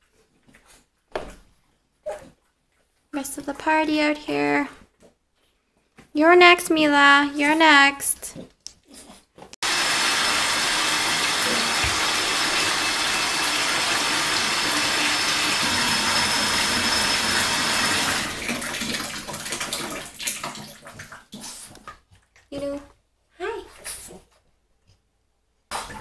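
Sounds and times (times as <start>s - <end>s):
water rushing from bathtub faucet: 9.6s - 22.0s.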